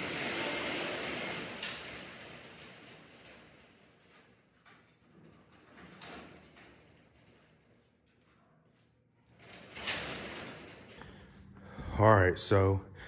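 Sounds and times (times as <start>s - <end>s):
roll-up door rattling down: 0.0s - 7.8s, 9.3s - 11.1s.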